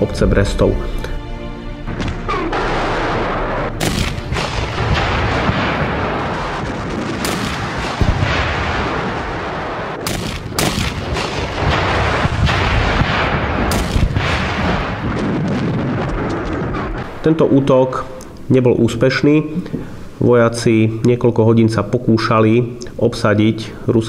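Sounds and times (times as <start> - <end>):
gunfire: 1.9 - 17.2
continuous rumbling din: 1.9 - 17.9
artillery shells exploding: 1.9 - 18.0.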